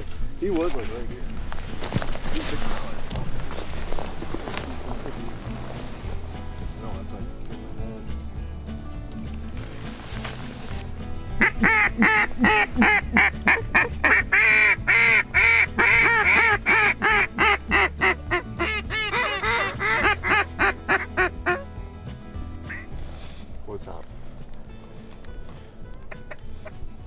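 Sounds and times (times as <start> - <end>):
duck call quacks: 11.4 - 21.7.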